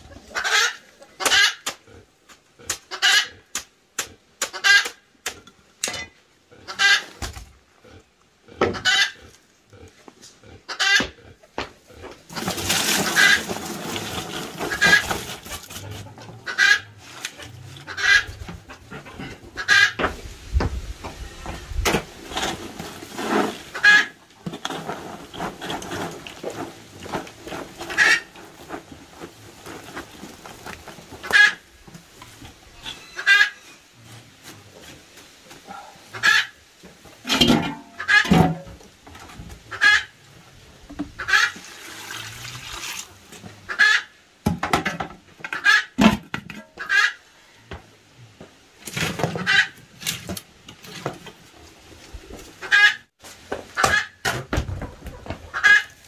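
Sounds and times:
chickens clucking and squawking: 0.0 - 5.1, 5.9 - 20.3, 21.0 - 34.1, 35.5 - 41.6, 43.4 - 44.4, 45.4 - 47.8, 49.1 - 50.0, 52.5 - 53.1, 53.7 - 56.0.

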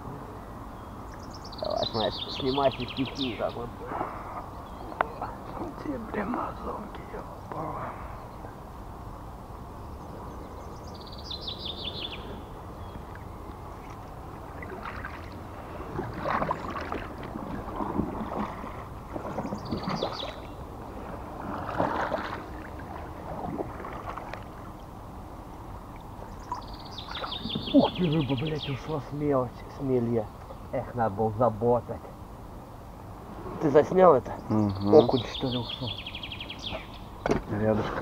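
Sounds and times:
songbird trilling: 0.8 - 6.2, 9.8 - 13.9, 19.4 - 20.7, 26.2 - 30.8, 34.3 - 37.4
oars splashing in water: 12.2 - 28.4.

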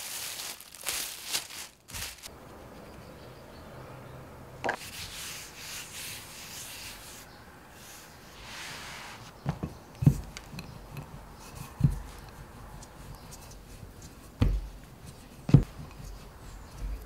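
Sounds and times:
hands rubbing over dough: 4.8 - 7.2.

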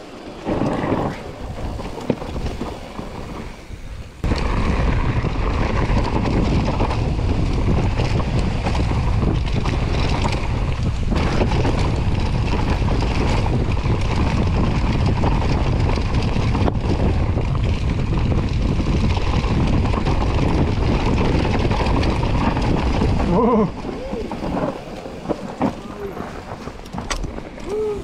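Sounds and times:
bike tyres rolling and rattling: 0.0 - 28.0
wind rushing over microphone: 0.0 - 28.0
person speaking: 27.6 - 28.0.

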